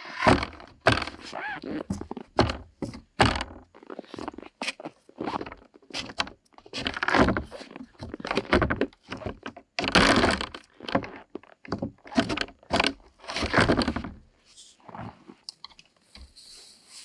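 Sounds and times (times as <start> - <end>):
wooden doors knocking and thudding: 0.2 - 1.3, 1.9 - 3.6, 11.7 - 14.2.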